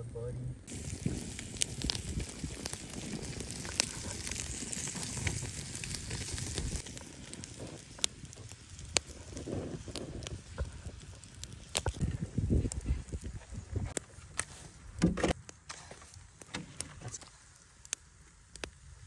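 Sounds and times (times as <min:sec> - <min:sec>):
wood fire crackling and popping: 0:00.2 - 0:19.0
fish sizzling on a grill: 0:00.7 - 0:14.7.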